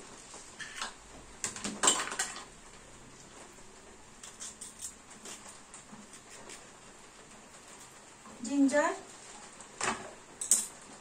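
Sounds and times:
hands peeling garlic: 4.2s - 6.8s.

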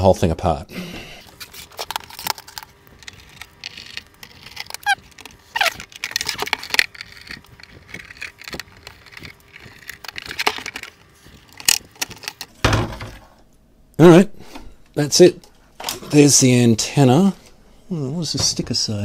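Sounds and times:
case clicks knocks and scrapes: 1.4s - 13.3s.

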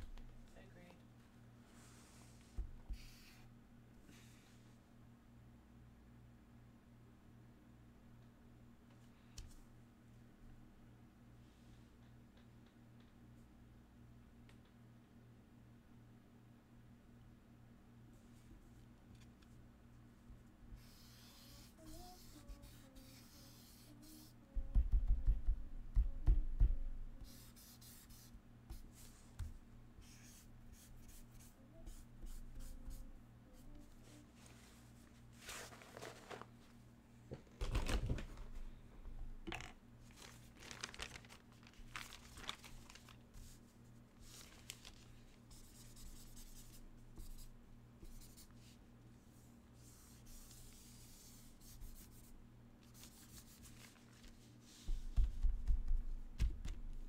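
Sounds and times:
low electrical hum: 0.0s - 57.0s
marker scratching on paper: 20.8s - 24.4s, 27.2s - 29.2s, 30.0s - 33.0s, 45.5s - 48.5s.

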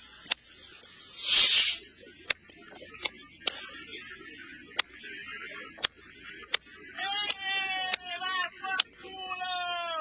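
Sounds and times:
fireworks hissing rush: 1.1s - 1.8s
fireworks popping: 1.2s - 2.4s.

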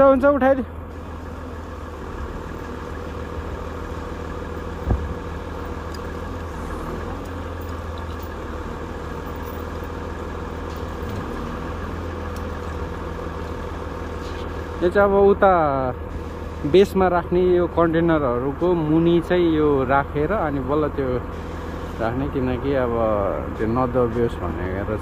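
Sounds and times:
heavy vehicle engine running: 0.0s - 25.0s
short thump: 4.8s - 5.2s.

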